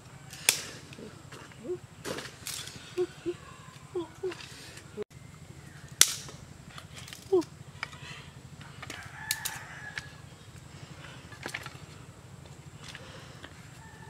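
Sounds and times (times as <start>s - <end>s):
bamboo sticks snapping: 0.3s - 2.9s, 5.9s - 8.0s, 8.8s - 10.1s.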